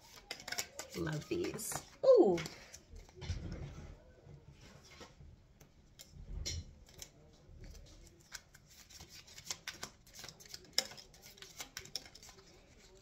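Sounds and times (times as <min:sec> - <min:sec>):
cards being shuffled: 0:00.0 - 0:03.2, 0:06.8 - 0:13.0.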